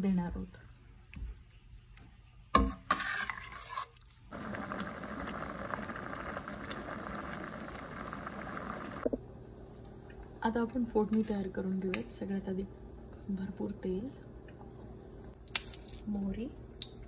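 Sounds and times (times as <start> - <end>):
dal boiling and bubbling: 0.0 - 9.5
ladle scraping a metal pan: 2.6 - 4.0.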